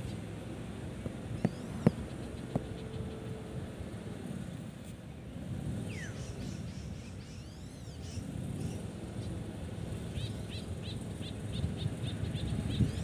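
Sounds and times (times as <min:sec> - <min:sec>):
birds chirping: 0:01.2 - 0:03.5, 0:05.7 - 0:13.0.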